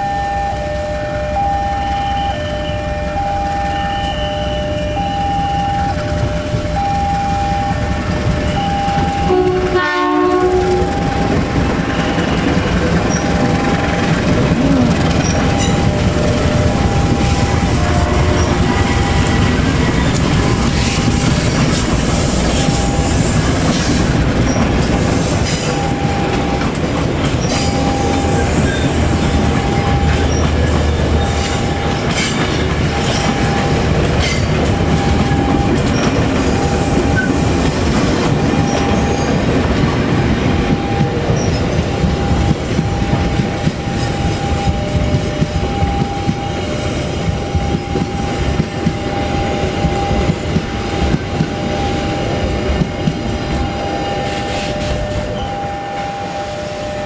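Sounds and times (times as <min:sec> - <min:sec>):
locomotive horn blast: 0:00.0 - 0:24.4, 0:27.4 - 0:37.6, 0:49.0 - 0:57.0
electronic warning tone beeping: 0:00.0 - 0:57.0
trains passing on rails: 0:00.0 - 0:57.0.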